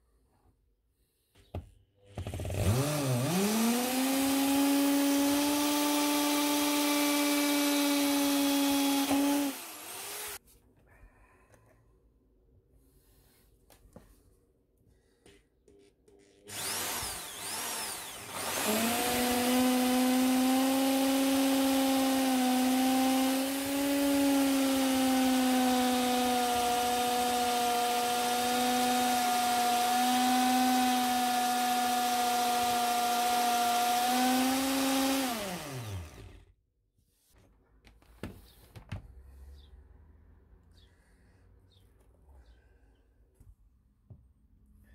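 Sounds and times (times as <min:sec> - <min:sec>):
electric drill whining: 0:02.2 - 0:10.4, 0:16.5 - 0:36.5.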